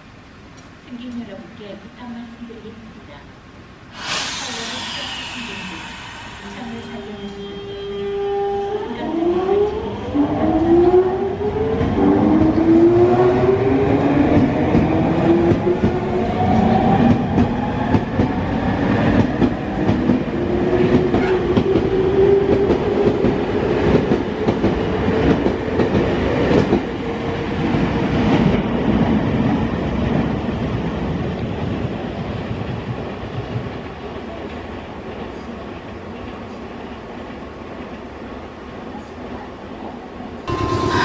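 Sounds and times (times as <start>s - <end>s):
electric train motors whining: 3.9s - 8.7s
train cars rumbling: 3.9s - 9.4s.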